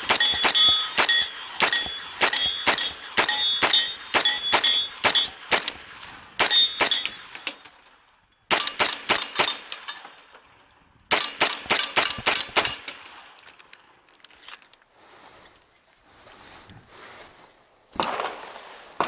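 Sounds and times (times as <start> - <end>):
steel targets clanging: 0.0 - 5.6, 6.4 - 10.4
gunshots: 0.0 - 7.6, 8.5 - 9.9, 11.1 - 13.3, 17.9 - 19.0.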